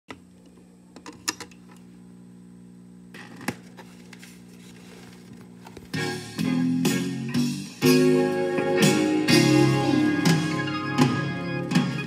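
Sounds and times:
record surface noise: 0:03.1 - 0:06.2.

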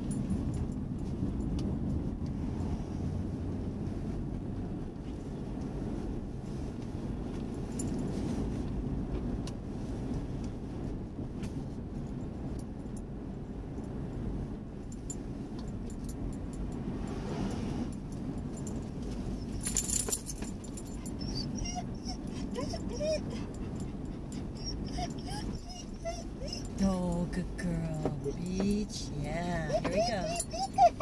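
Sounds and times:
car cabin road noise: 0:00.0 - 0:31.0
light metallic jingles: 0:17.9 - 0:31.0.

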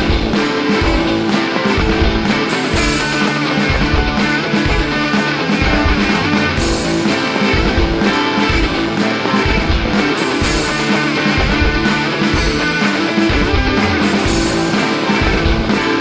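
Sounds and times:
rock music with guitar and drums: 0:00.0 - 0:16.0.

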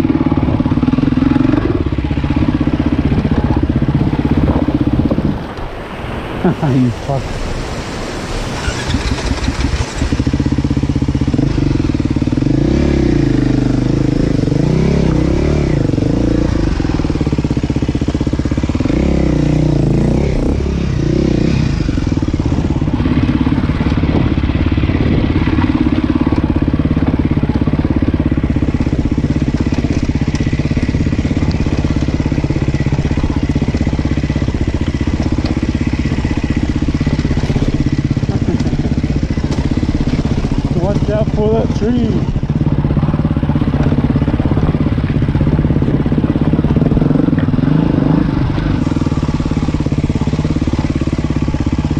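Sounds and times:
off-road vehicle engine: 0:00.0 - 0:51.9.

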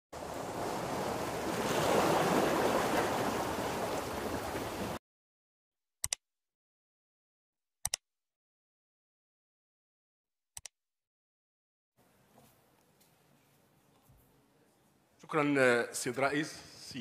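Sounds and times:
computer mouse clicks: 0:07.8 - 0:08.0.

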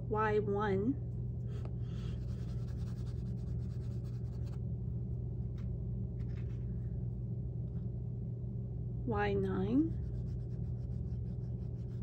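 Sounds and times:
steady low hum: 0:00.0 - 0:12.0
pastel stick scratching on paper: 0:02.0 - 0:04.6, 0:09.9 - 0:12.0.

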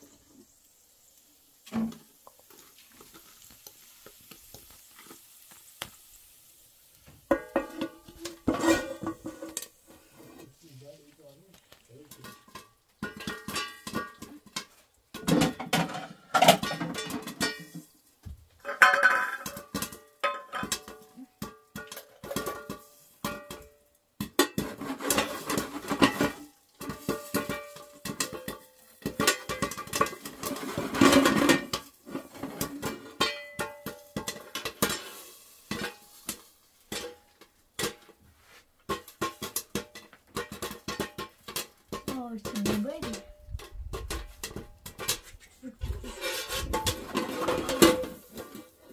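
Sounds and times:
metal spoon scraping a metal pan: 0:07.3 - 0:10.6, 0:24.4 - 0:38.1, 0:38.9 - 0:48.9.

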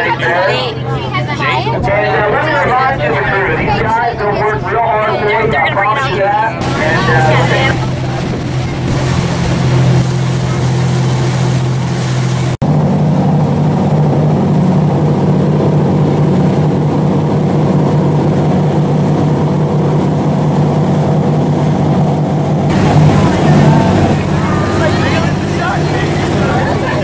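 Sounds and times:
boat engine droning: 0:00.0 - 0:27.0
water rushing and churning: 0:00.0 - 0:27.0.

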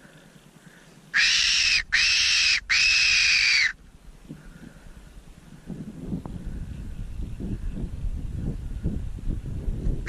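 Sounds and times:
squealing whistle calls: 0:01.2 - 0:03.8.

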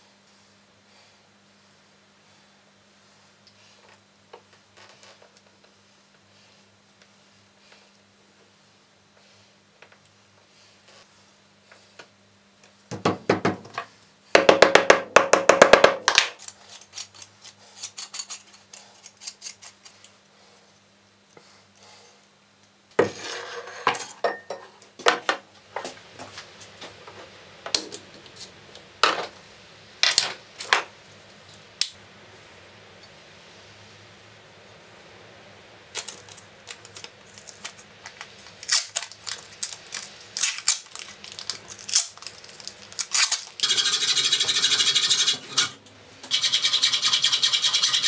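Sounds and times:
rustling scrape: 0:23.0 - 0:24.2.

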